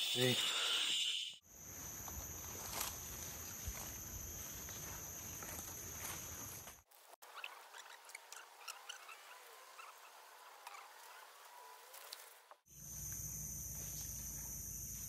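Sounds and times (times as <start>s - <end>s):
high-pitched insect chorus: 0.0s - 6.8s, 12.7s - 15.0s.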